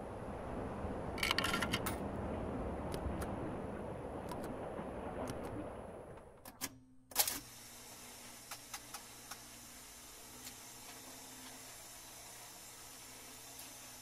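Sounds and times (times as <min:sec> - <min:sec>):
dense noisy sound: 0:00.0 - 0:06.5.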